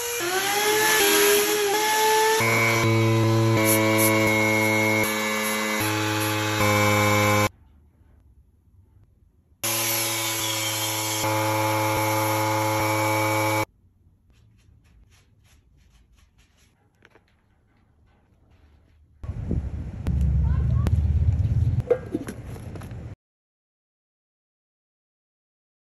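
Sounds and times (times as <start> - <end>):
angle grinder sanding wood: 0.0 - 7.5, 9.6 - 13.7.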